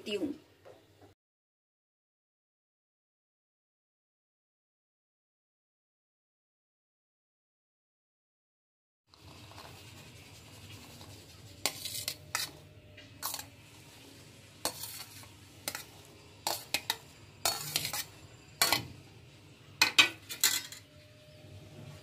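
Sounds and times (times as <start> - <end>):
utensil scraping steel plate: 9.3 - 13.5, 14.6 - 19.0.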